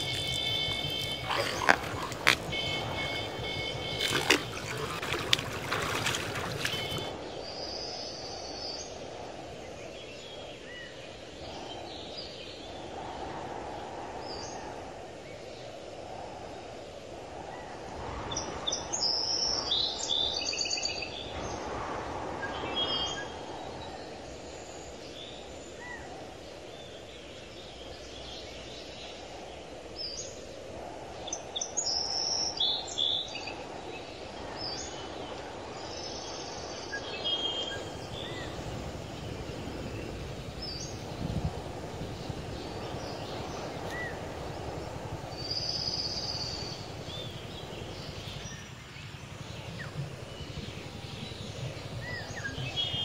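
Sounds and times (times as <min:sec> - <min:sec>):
small birds chirping: 0:00.0 - 0:08.8, 0:31.3 - 0:53.0.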